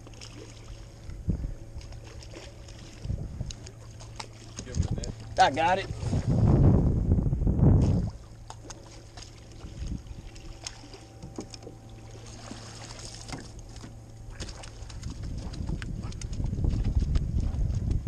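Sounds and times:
steady low hum: 0.0s - 18.0s
water splashing and dripping: 1.8s - 5.3s, 7.8s - 18.0s.

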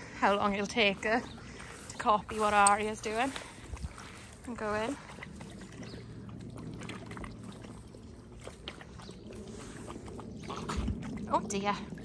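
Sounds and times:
dogs lapping water: 3.1s - 12.0s.

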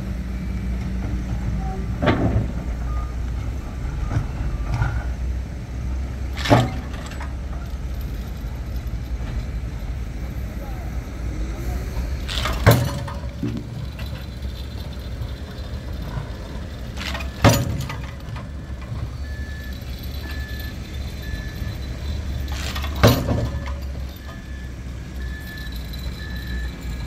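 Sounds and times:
diesel engine rumble: 0.0s - 27.0s
pile driver hammer blows: 11.9s - 16.3s, 16.9s - 27.0s.

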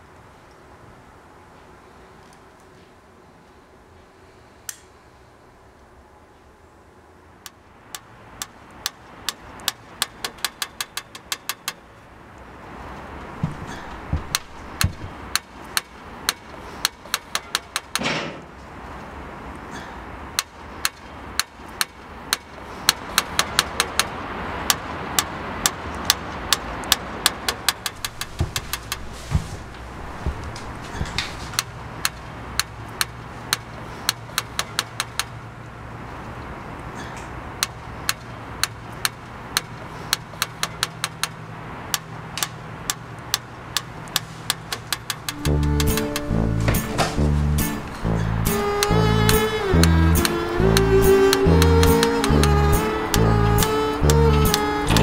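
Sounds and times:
steady background hiss: 0.0s - 55.0s
sharp irregular clicks: 7.4s - 11.8s, 14.0s - 18.1s, 20.3s - 29.2s, 30.2s - 35.4s, 37.6s - 46.3s, 47.6s - 55.0s
low steady hum: 45.3s - 55.0s.

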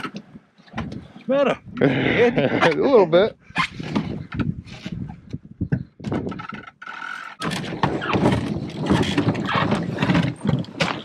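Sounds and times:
grass scraping along canoe hull: 3.6s - 5.1s, 6.4s - 11.0s.

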